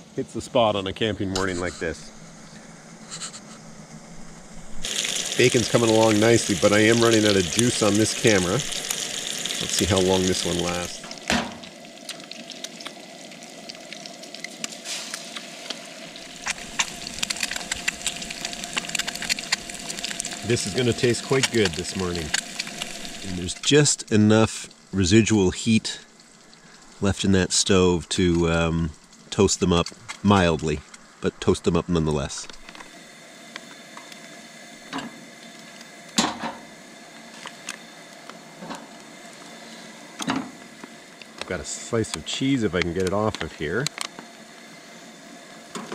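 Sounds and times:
camp stove burner hissing: 0:00.0 - 0:45.9
bacon and egg sizzling: 0:01.4 - 0:45.9
fat popping and crackling: 0:03.0 - 0:23.8, 0:28.3 - 0:32.9, 0:40.2 - 0:44.3.

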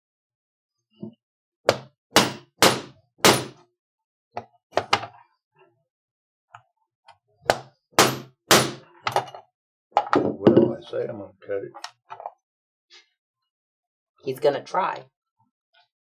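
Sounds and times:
mallet striking steel punch: 0:01.7 - 0:03.6, 0:08.0 - 0:08.8.

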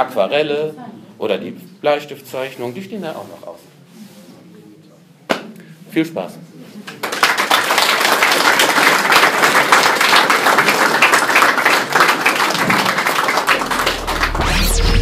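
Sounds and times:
audience applauding: 0:06.9 - 0:15.0
electronic music with deep bass: 0:13.6 - 0:15.0.

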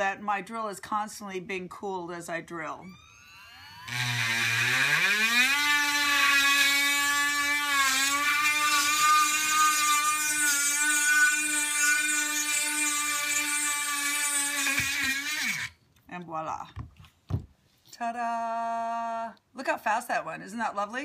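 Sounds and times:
rotary tool motor whine: 0:02.9 - 0:15.8.

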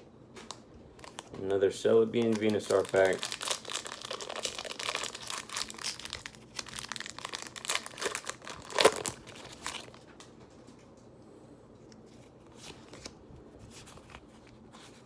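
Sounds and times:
plastic packaging crinkling and tearing: 0:00.4 - 0:10.4.

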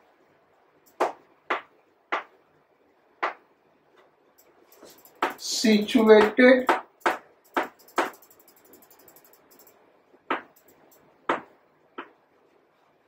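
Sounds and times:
faint chalk scratching: 0:04.6 - 0:06.3
chalk strokes on blackboard: 0:04.7 - 0:06.3.

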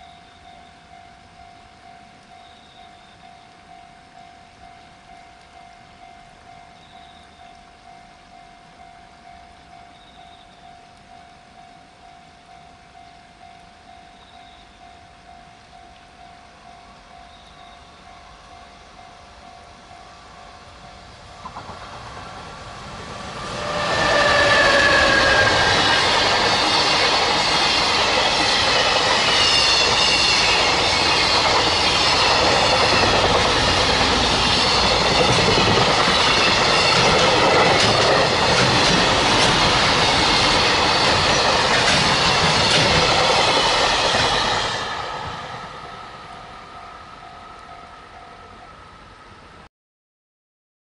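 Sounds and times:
train passing: 0:00.0 - 0:07.5, 0:14.7 - 0:49.7
faint level crossing bell: 0:00.0 - 0:21.4, 0:45.8 - 0:49.0
wheels clacking over rail joints: 0:21.2 - 0:46.3
brief falling tone: 0:22.8 - 0:28.8.

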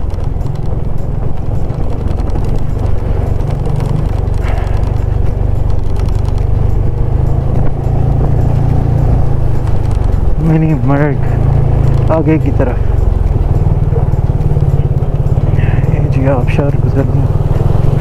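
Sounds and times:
motorcycle engine droning: 0:00.0 - 0:18.0.

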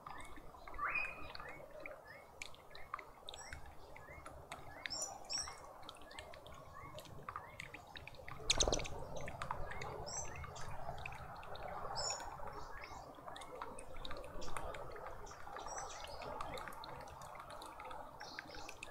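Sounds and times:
small birds chirping: 0:00.1 - 0:16.7
whistled bird notes: 0:00.8 - 0:01.6.

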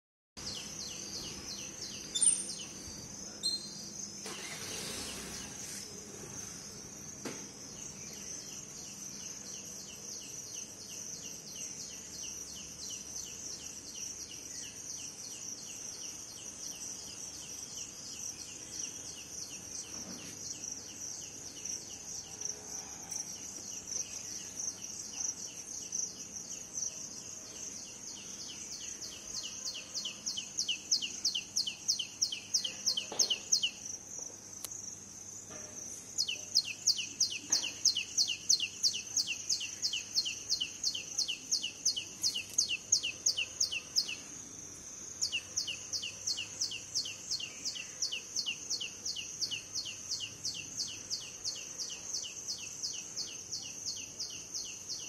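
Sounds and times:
bird chirping: 0:00.4 - 0:06.9, 0:07.5 - 0:35.0, 0:36.1 - 0:55.0
high-pitched insect chorus: 0:36.2 - 0:55.0.

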